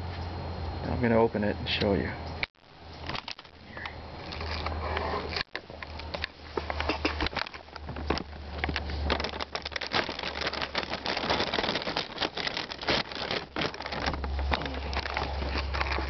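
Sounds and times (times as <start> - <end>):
plastic bag crinkling: 3.0 - 4.7, 5.4 - 16.0.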